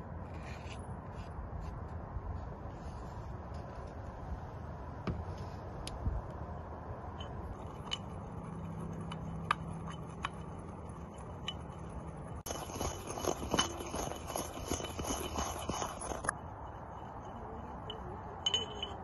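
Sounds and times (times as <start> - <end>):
pestle grinding in ceramic mortar: 7.3 - 16.4.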